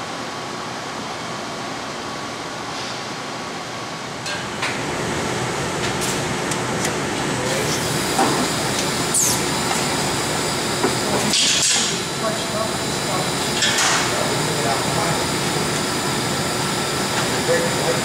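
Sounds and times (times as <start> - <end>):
brazing machine hissing: 7.5 - 17.8.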